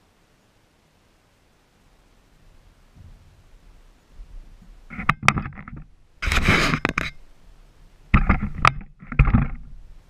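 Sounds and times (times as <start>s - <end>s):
clicks and knocks: 4.6s - 7.2s, 8.1s - 9.8s
camera handling rubbing: 4.9s - 7.2s, 8.2s - 9.7s.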